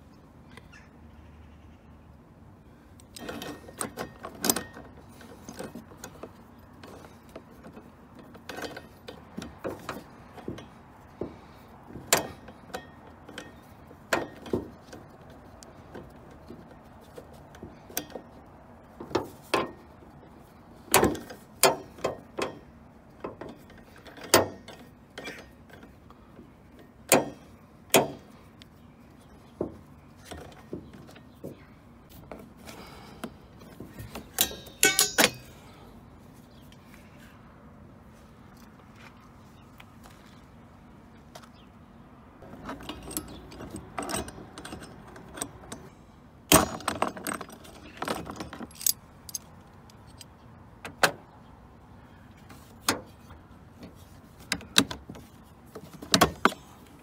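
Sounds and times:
metallic clicks and clinks: 34.3s - 35.5s, 46.5s - 50.4s.

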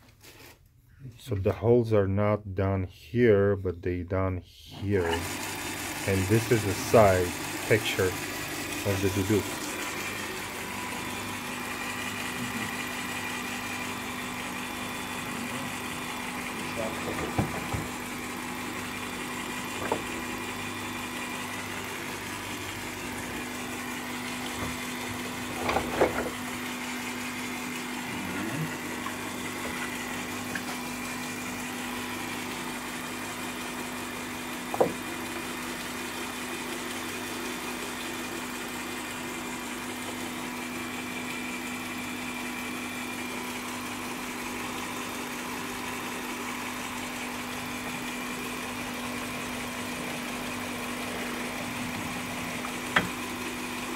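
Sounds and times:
drill press motor humming: 4.9s - 53.9s
sharp wooden knocks: 34.7s - 35.0s.

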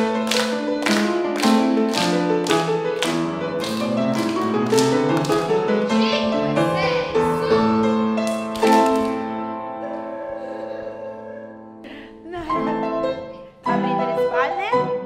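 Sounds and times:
piano playing rhythmic chords: 0.0s - 15.0s.

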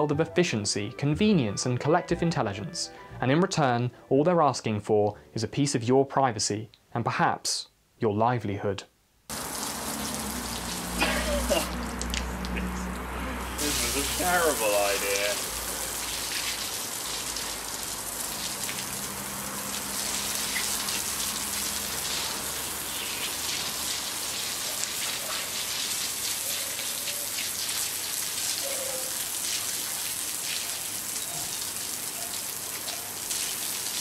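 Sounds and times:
hose spray hissing on bricks: 9.3s - 12.8s, 13.4s - 34.0s.

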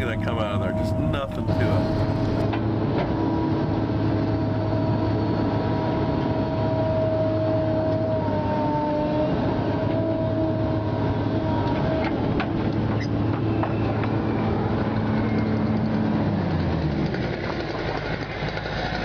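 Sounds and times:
high hydraulic whine: 0.0s - 2.6s
excavator diesel engine: 0.0s - 19.0s.

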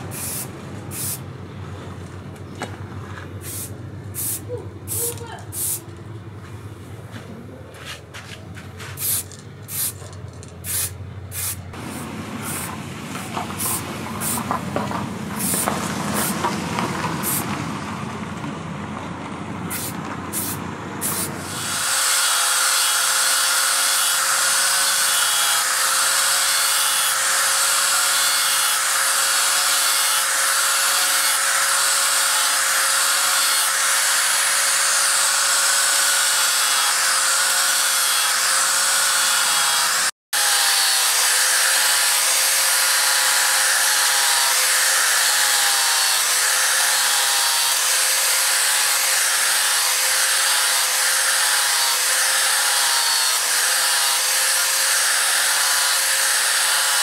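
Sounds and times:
spray paint can hissing: 0.1s - 1.2s, 3.4s - 5.9s, 8.9s - 12.7s, 13.6s - 14.5s, 15.4s - 16.4s, 17.2s - 17.5s, 19.7s - 21.4s
angle grinder whining on steel: 21.1s - 57.0s.

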